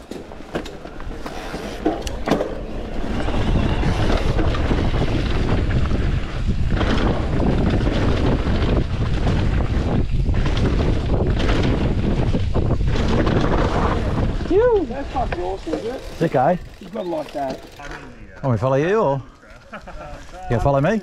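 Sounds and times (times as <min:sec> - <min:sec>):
bike tyres rolling on dirt: 0:00.0 - 0:21.0
wind buffeting microphone: 0:01.9 - 0:17.6.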